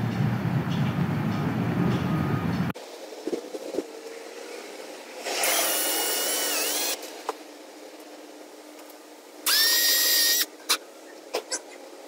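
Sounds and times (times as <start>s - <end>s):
cordless drill whining: 5.4s - 7.0s, 9.5s - 10.5s.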